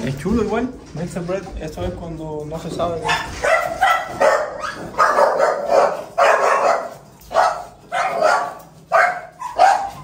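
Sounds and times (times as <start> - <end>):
dog barking: 3.0 - 10.0.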